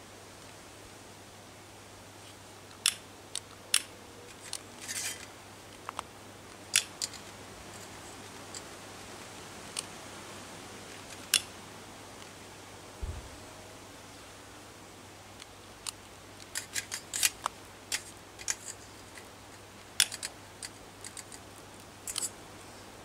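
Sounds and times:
sticks rustling: 0:04.2 - 0:08.8, 0:16.4 - 0:22.4.

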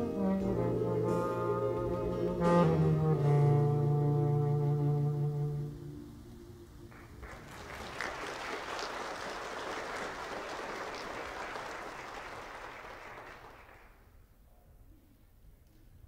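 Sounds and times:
congregation applauding: 0:06.9 - 0:14.2.

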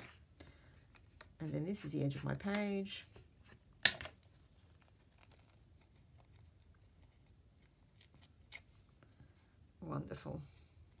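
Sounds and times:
paper napkin crinkling: 0:04.4 - 0:08.8.

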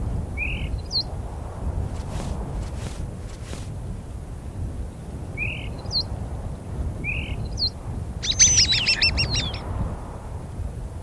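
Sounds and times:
starlings chirping and calling: 0:07.2 - 0:09.6.

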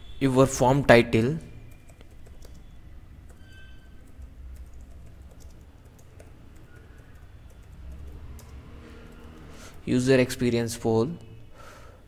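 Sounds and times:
keyboard keys clicking: 0:01.7 - 0:09.5.

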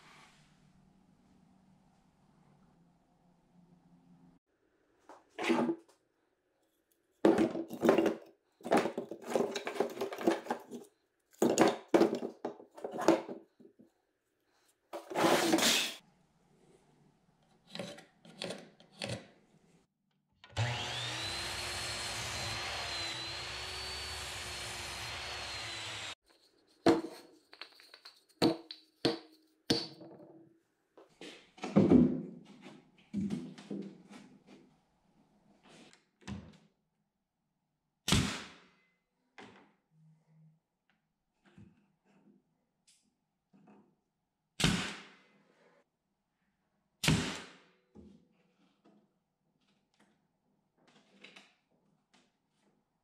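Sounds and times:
wooden boards knocked and shuffled: 0:11.4 - 0:13.4
power tool motor whine: 0:20.5 - 0:26.2.

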